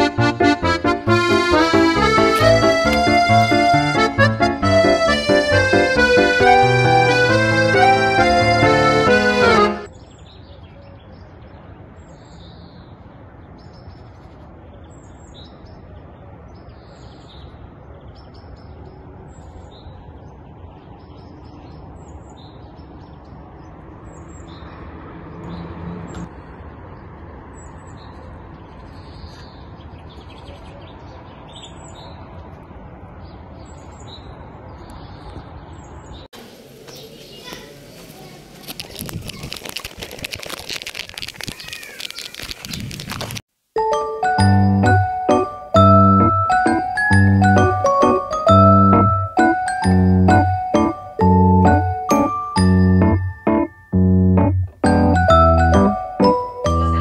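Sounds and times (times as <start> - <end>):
small birds chirping: 9.9 - 43.4.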